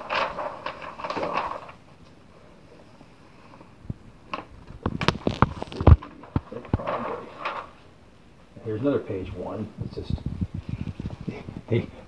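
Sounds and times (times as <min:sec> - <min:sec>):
newspaper pages turning: 0:00.0 - 0:02.1, 0:04.3 - 0:07.9.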